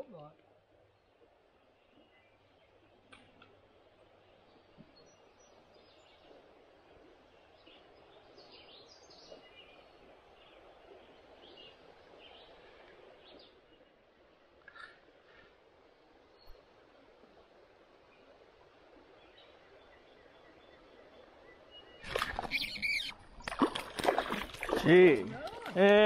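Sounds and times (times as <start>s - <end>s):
faint outdoor hiss: 0.0s - 26.0s
faint bird chirps: 19.1s - 23.2s.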